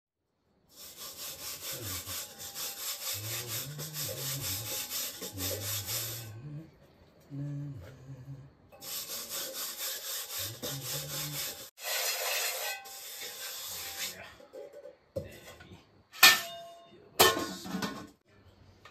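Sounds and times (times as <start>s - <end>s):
hand scraping metal pot: 0.7s - 6.4s, 8.8s - 15.0s.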